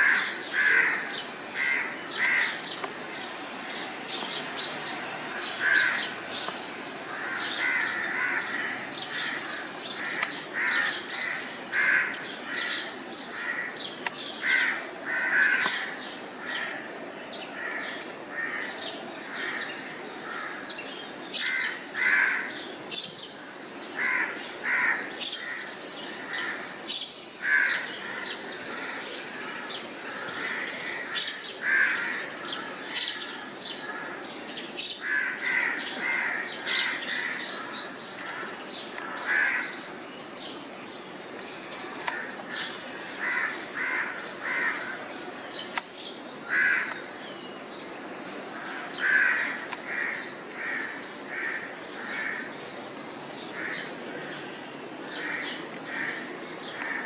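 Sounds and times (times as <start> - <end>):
harsh bird caws: 0.0 - 13.8, 14.4 - 16.9, 17.5 - 20.7, 21.4 - 22.6, 23.4 - 26.8, 27.4 - 34.3, 34.9 - 39.9, 41.4 - 45.1, 46.4 - 47.1, 48.5 - 52.6, 55.0 - 57.0.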